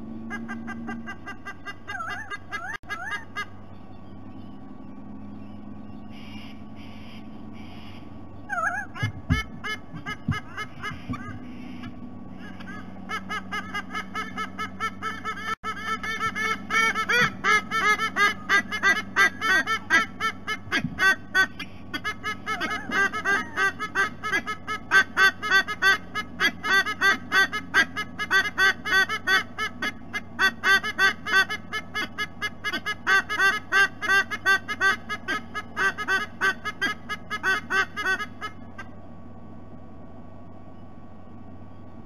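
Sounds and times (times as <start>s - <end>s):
sea-eagles honking calls: 0.2s - 3.6s, 5.7s - 39.0s.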